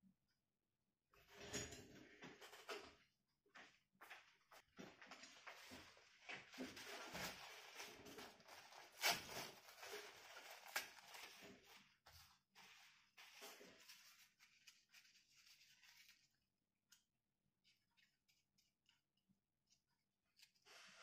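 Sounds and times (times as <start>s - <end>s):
paper tissue rustling and tearing: 5.6s - 12.0s, 12.6s - 16.4s.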